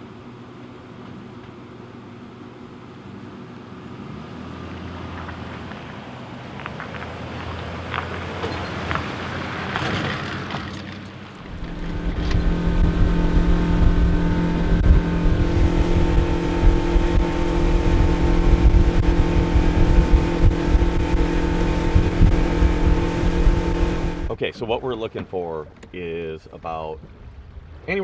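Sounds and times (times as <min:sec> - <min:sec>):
outboard motor running: 0:00.0 - 0:05.6, 0:07.7 - 0:28.0
wind and water rushing: 0:11.3 - 0:28.0
low hum: 0:11.4 - 0:27.9.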